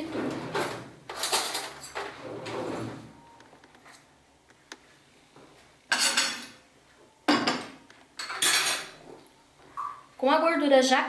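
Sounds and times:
metal pot clattering on grate: 7.3s - 9.0s.

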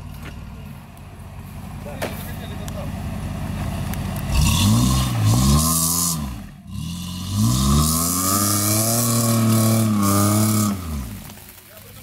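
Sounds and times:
engine revving: 2.3s - 11.6s.

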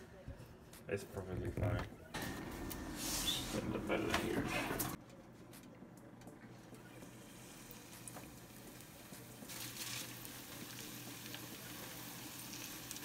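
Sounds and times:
hot oil sizzling: 7.1s - 13.0s.

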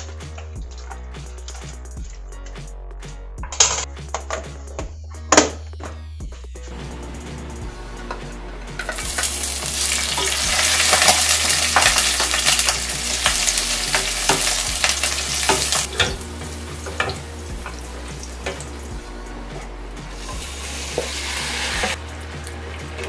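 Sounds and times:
vegetables sizzling in hot oil: 8.8s - 18.8s, 20.2s - 22.0s.

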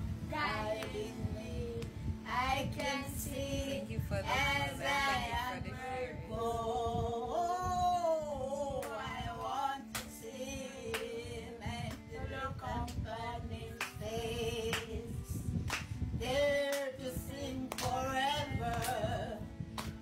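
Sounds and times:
woman and boy singing a hymn: 0.2s - 19.6s
hand claps: 8.8s - 10.2s, 10.9s - 11.2s, 13.8s - 14.0s, 14.7s - 15.0s, 15.7s - 16.0s, 16.6s - 17.0s, 17.6s - 19.1s, 19.7s - 20.0s.

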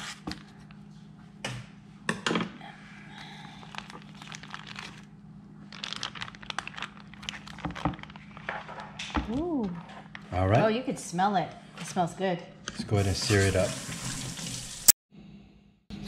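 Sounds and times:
plastic bag crinkling: 3.6s - 8.8s.

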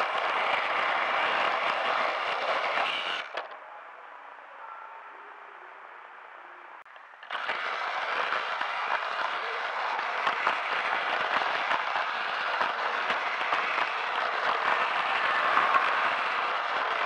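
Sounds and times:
toy train rattling on track: 0.0s - 3.6s, 7.1s - 17.0s.

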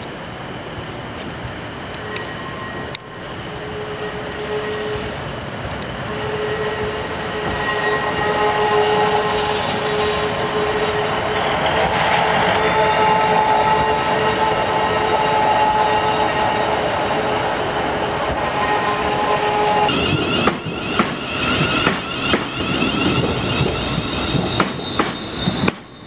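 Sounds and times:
diesel train passing: 0.0s - 26.0s.

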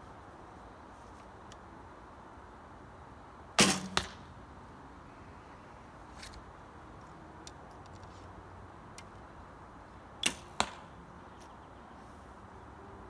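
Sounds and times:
arrow striking target: 3.6s - 4.3s, 10.2s - 10.9s.

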